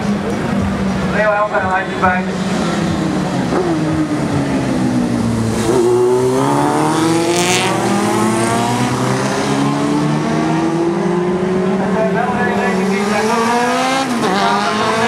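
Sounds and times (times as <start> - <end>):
motorcycle engine accelerating: 2.1 - 15.0.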